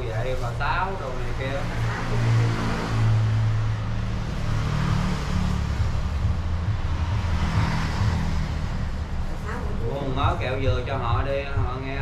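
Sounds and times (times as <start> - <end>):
road noise: 0.0 - 12.0
vehicle engine drone: 0.0 - 12.0.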